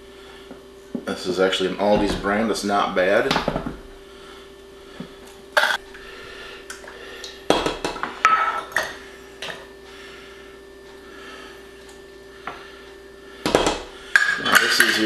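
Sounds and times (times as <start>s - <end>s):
faint steady hum: 0.0s - 15.0s
metal cups clinking: 13.5s - 15.0s.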